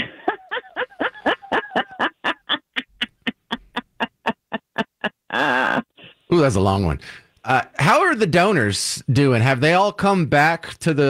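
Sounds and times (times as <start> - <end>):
person cackling laugh: 0.0 - 5.9.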